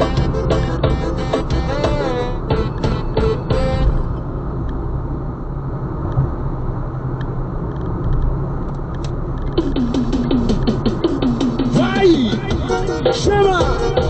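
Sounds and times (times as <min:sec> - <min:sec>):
music: 0:00.0 - 0:04.1, 0:09.6 - 0:14.0
vehicle rumble: 0:00.0 - 0:14.0.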